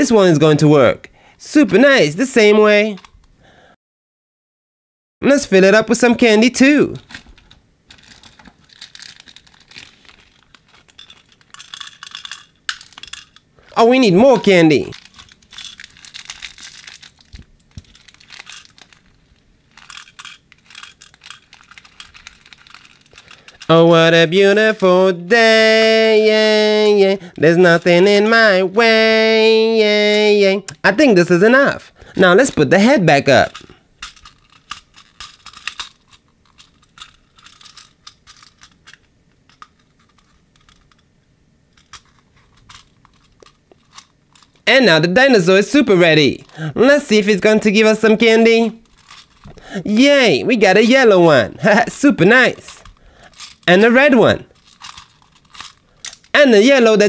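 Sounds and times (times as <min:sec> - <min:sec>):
candies poured into plastic dispenser: 0:07.0 - 0:13.9, 0:14.8 - 0:28.0, 0:47.7 - 0:49.6, 0:52.4 - 0:56.4
plastic bag crinkling: 0:07.0 - 0:28.5, 0:33.3 - 0:41.1, 0:41.7 - 0:44.7, 0:48.2 - 0:49.8, 0:51.6 - 0:56.4.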